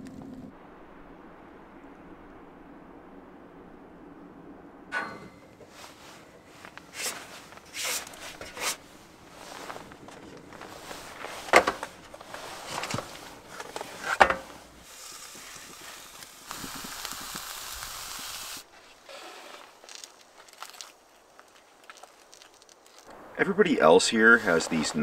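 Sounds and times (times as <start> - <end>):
gas hissing: 5.0 - 19.7.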